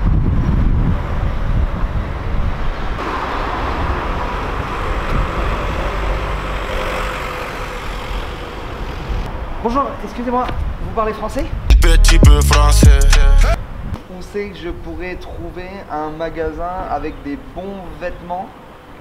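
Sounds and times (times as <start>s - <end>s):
wind rumbling on microphone: 0.0s - 11.8s, 13.6s - 14.0s
road traffic hum: 0.0s - 19.0s.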